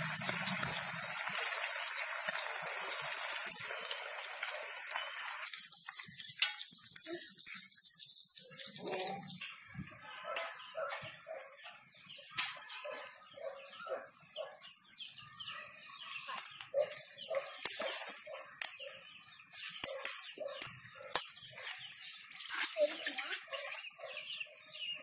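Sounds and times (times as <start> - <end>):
fish frying in hot oil: 0.0 - 9.4
small birds chirping: 0.0 - 25.0.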